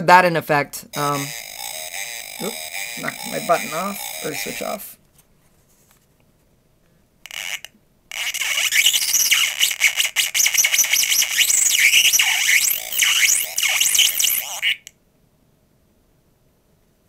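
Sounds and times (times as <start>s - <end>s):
glitchy electronic squeals: 1.0s - 4.8s, 7.3s - 14.9s.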